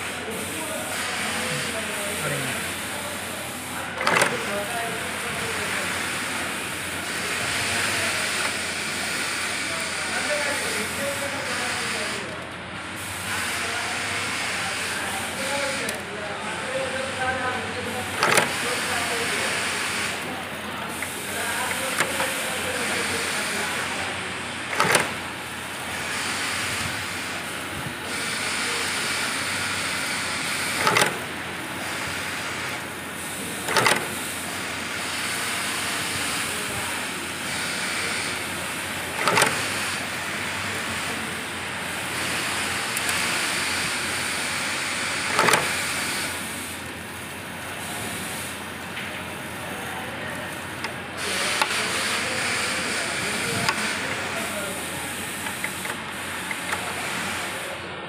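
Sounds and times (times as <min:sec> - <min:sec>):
press punching snap fasteners: 0:18.2 - 0:18.6, 0:24.7 - 0:25.2, 0:30.8 - 0:31.3, 0:33.6 - 0:34.1, 0:39.2 - 0:39.7, 0:45.3 - 0:45.8.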